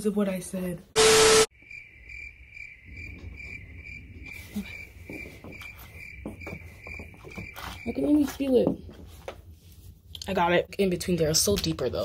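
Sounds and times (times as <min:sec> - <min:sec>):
tv static: 0:01.0 - 0:01.5
cricket chirping: 0:01.0 - 0:08.1
pencil knocking and scraping floor: 0:05.1 - 0:09.5.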